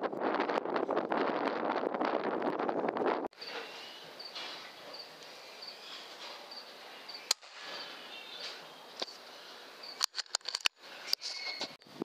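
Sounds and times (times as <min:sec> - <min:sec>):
faint high chirp: 0:11.1 - 0:11.8.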